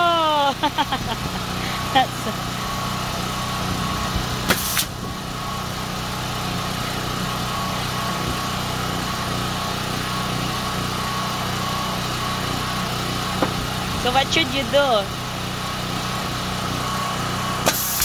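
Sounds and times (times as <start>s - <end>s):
machine hum: 0.0s - 18.0s
air hiss: 4.5s - 4.9s
nail gun bang: 4.5s - 4.9s, 17.6s - 18.0s.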